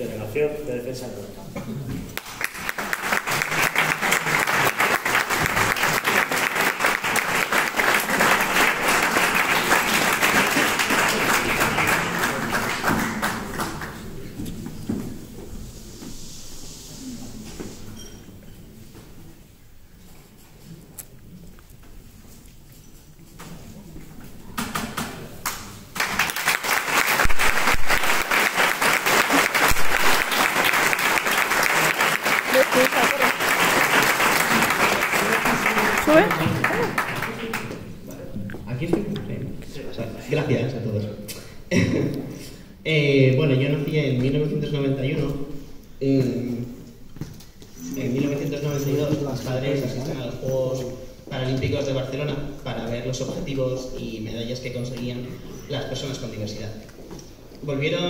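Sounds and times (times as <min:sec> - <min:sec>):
audience applauding: 0:02.2 - 0:14.2, 0:25.4 - 0:37.9.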